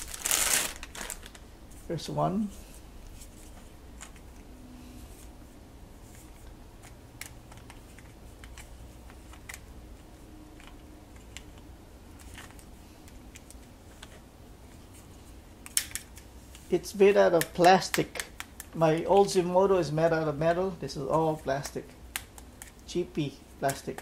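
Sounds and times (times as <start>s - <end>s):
plastic bagging crinkling: 0.0s - 1.8s
faint low hum: 0.0s - 24.0s.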